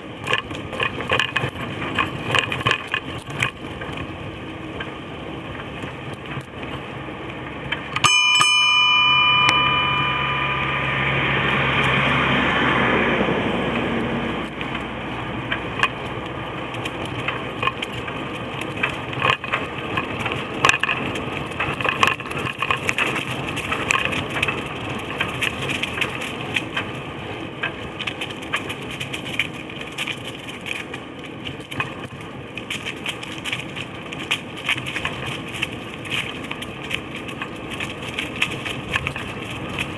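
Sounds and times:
bicycle rattling and clicking: 0.2s - 6.6s, 14.4s - 14.6s, 16.7s - 39.9s
bicycle bell ringing: 0.8s - 3.6s, 6.1s - 6.5s, 20.6s - 20.8s, 21.4s - 24.0s.

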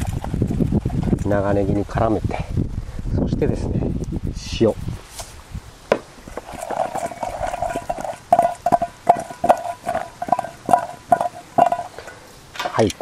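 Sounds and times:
salt rattling: 6.2s - 13.0s.

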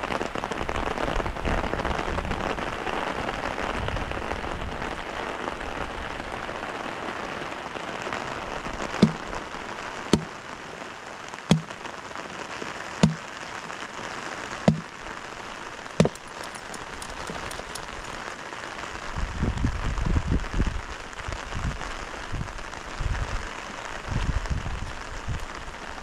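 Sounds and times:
heavy rain: 0.0s - 26.0s
hatchet chopping firewood: 9.0s - 9.3s, 10.1s - 10.4s, 11.5s - 11.8s, 13.0s - 13.3s, 14.7s - 14.9s, 16.0s - 17.9s
wood thuds and rustling: 9.0s - 9.3s, 10.1s - 10.4s, 11.5s - 11.8s, 13.0s - 13.2s, 14.7s - 14.9s, 16.0s - 18.0s.

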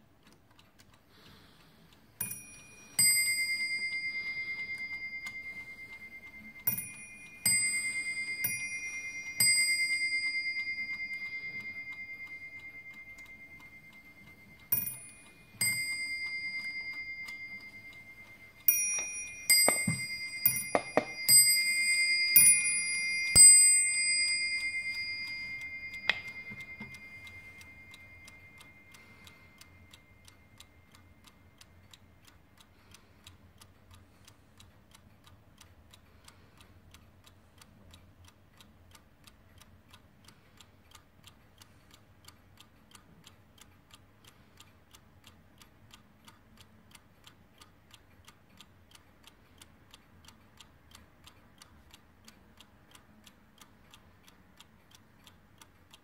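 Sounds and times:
clock ticking: 0.0s - 56.0s
clock bell ringing: 2.2s - 30.2s.

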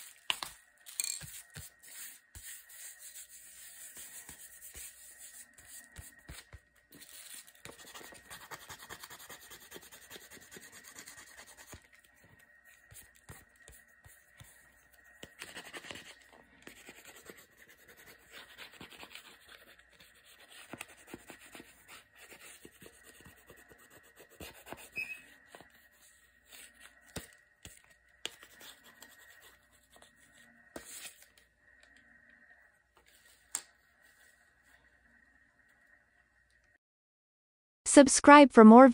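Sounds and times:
eraser scrubbing on board: 7.3s - 11.9s.

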